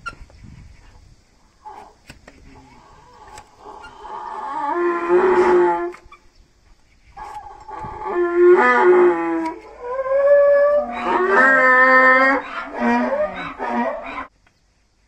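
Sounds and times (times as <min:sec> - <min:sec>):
donkey braying: 0:01.6 - 0:06.1, 0:07.2 - 0:14.3.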